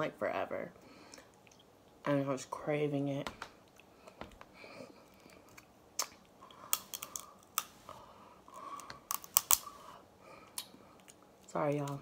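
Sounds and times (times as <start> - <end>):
crab shell cracking: 5.1 - 7.8, 8.5 - 9.8.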